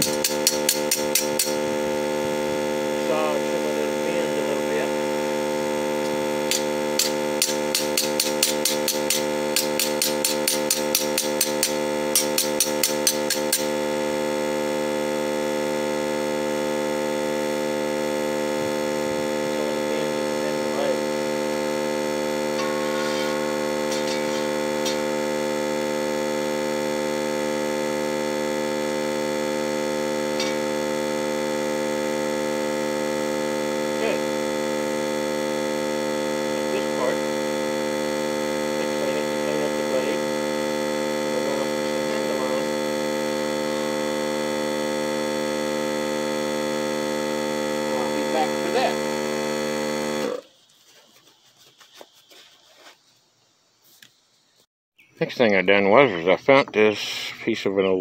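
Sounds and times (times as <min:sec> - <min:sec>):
electrical hum: 0:00.0 - 0:50.7.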